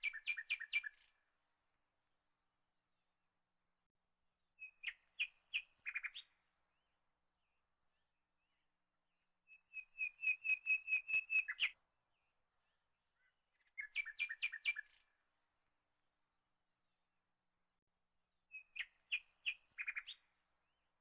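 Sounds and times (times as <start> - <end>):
small bird chirping: 0.0 - 1.1, 4.6 - 6.5, 9.5 - 11.8, 12.6 - 15.2, 18.5 - 20.5.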